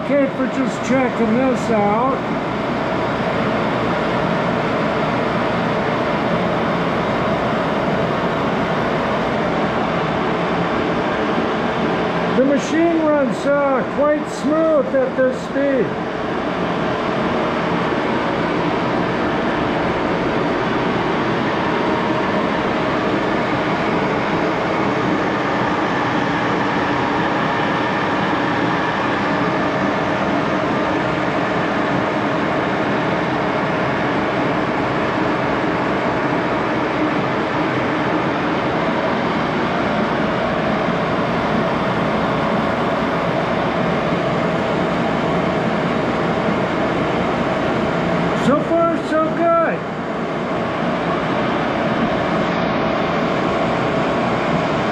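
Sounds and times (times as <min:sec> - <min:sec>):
lathe running: 0:00.0 - 0:54.9.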